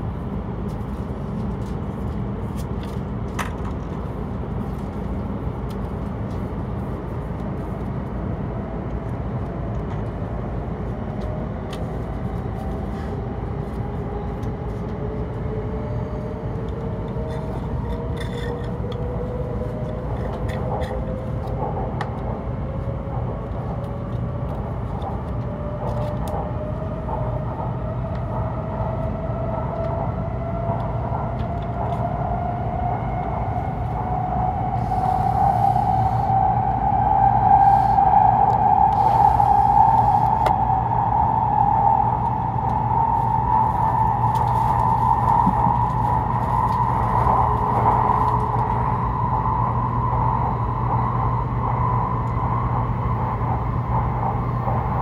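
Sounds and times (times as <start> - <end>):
train running gear rumble: 0.0 - 55.0
traction motor whine rising: 23.8 - 55.0.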